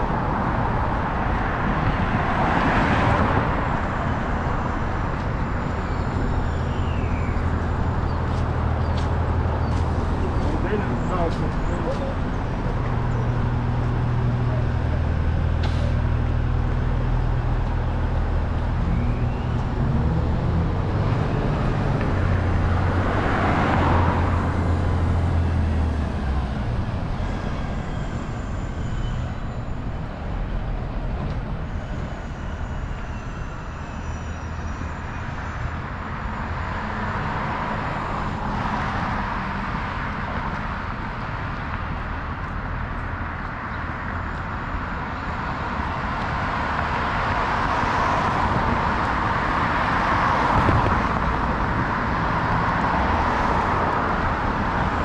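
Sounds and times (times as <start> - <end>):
low engine rumble: 7.3 - 23.2.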